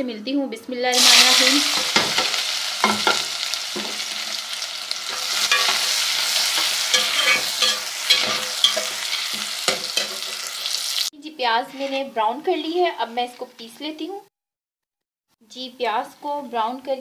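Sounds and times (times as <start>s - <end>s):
onions sizzling: 0.9s - 11.1s
spoon knocking against pot: 1.8s - 4.0s, 6.6s - 10.4s.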